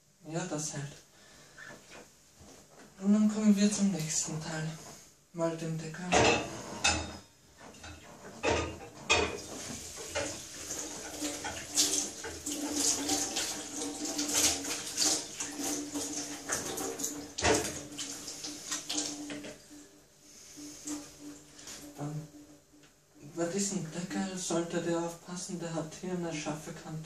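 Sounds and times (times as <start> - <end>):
tap water running over pot lid: 8.8 - 19.7.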